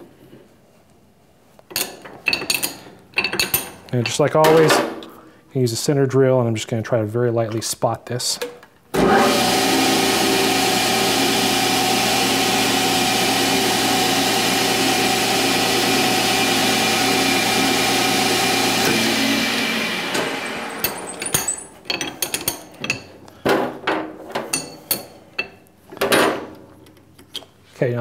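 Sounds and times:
metal clicks and knocks: 1.7s - 4.9s
lathe winding down: 9.0s - 21.2s.

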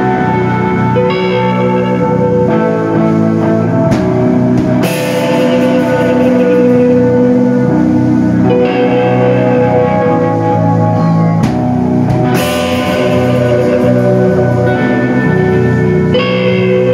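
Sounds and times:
drum kit: 0.0s - 16.9s
electric guitars ringing chords: 0.0s - 16.9s
cymbal crash: 4.0s - 9.9s, 11.5s - 16.5s.

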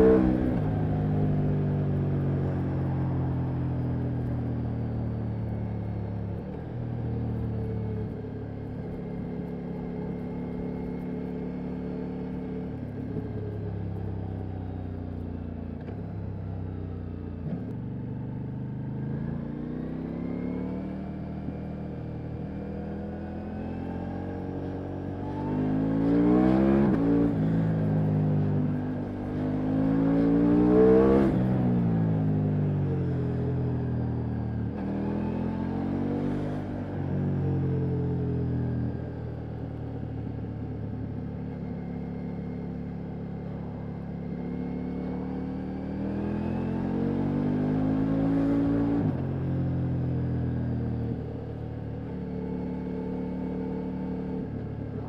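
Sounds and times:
motorcycle engine while riding: 0.0s - 55.0s.

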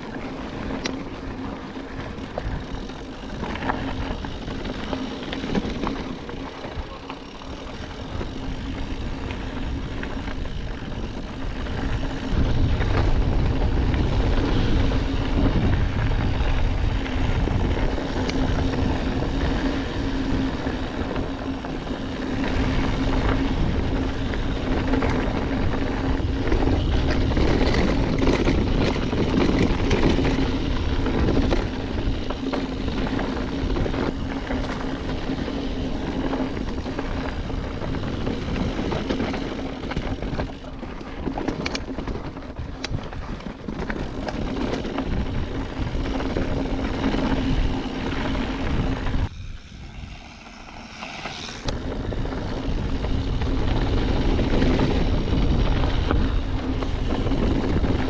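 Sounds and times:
tyre noise on dirt: 0.0s - 58.0s
wind rushing over microphone: 0.0s - 58.0s
steady buzzing hum: 44.0s - 58.0s.

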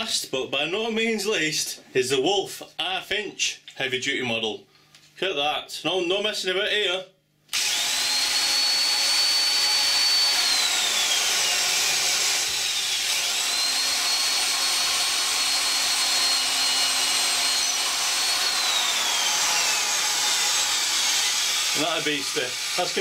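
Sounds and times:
electric drill boring into wood: 7.5s - 23.0s.

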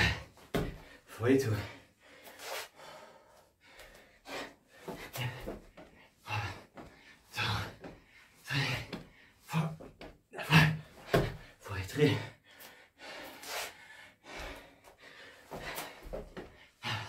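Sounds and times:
man breathing hard: 0.0s - 17.0s.

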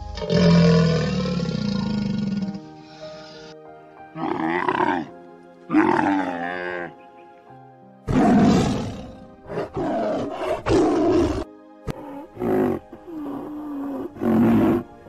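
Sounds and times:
tiger roaring: 0.0s - 2.6s, 4.2s - 5.1s, 5.7s - 6.9s, 8.1s - 14.9s
background music: 0.0s - 15.0s
camel groaning: 0.2s - 2.6s, 4.2s - 5.1s, 5.7s - 6.9s, 8.1s - 15.0s.

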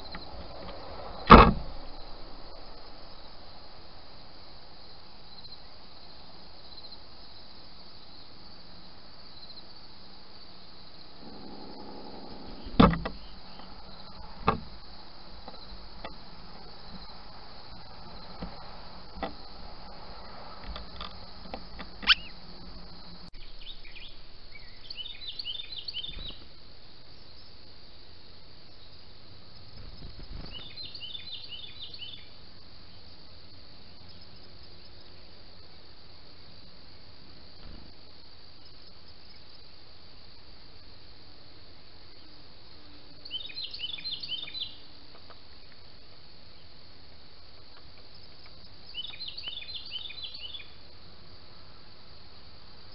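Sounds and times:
high drone of insects: 0.0s - 52.9s
sharp knocks: 1.3s - 1.7s, 12.6s - 13.2s, 14.4s - 14.8s
quick high bird calls: 22.0s - 22.6s.

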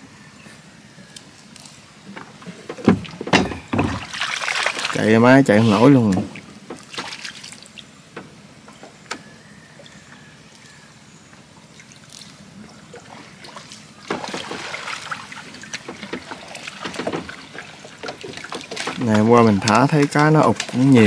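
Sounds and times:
splashing and rustling: 1.4s - 8.0s, 11.6s - 21.0s
water dripping and sloshing: 2.4s - 7.9s, 11.6s - 21.0s.

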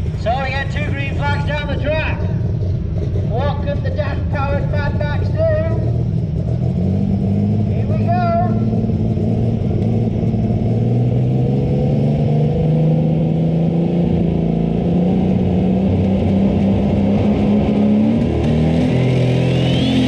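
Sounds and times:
tractor engine running at high revs: 0.0s - 20.0s
thin rising whine: 8.5s - 20.0s.

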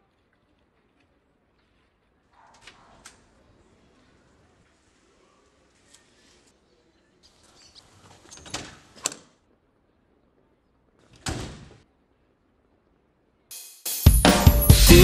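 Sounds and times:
music: 13.5s - 15.0s.

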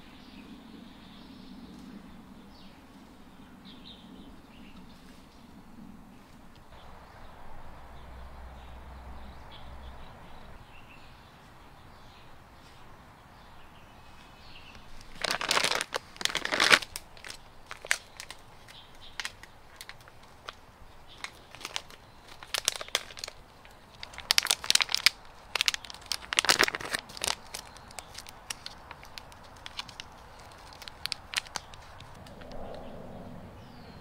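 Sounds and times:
plastic film crinkling and tearing: 14.9s - 32.5s.

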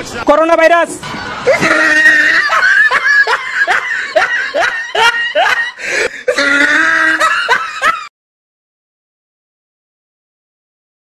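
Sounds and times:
person laughing in bursts: 1.4s - 8.1s.

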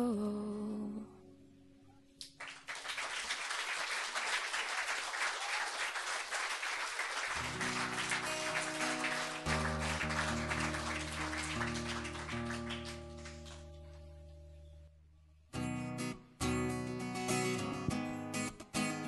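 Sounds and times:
audience applauding: 2.2s - 14.1s
acoustic guitar: 7.4s - 14.7s, 15.5s - 19.0s.

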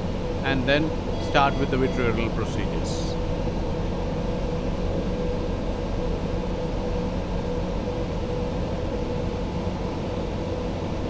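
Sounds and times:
ventilation hum: 0.0s - 11.0s.

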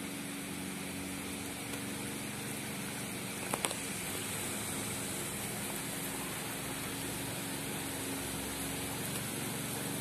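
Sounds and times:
low steady hum: 0.0s - 10.0s
rain falling: 0.6s - 10.0s.

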